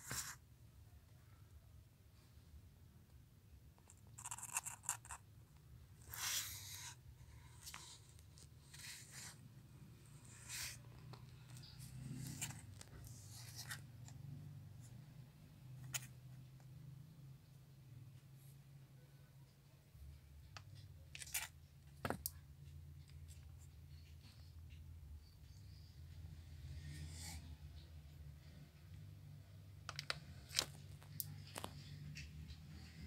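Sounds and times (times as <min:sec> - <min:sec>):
scratchy rustles and scrapes: 0:00.0 - 0:00.4, 0:10.2 - 0:14.2, 0:21.1 - 0:22.2.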